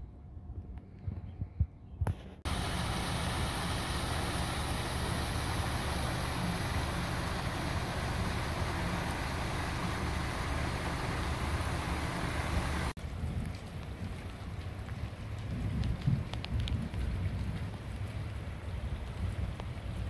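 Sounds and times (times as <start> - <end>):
rainwater rushing into storm drain: 2.4 - 20.0
wind buffeting microphone: 14.9 - 20.0.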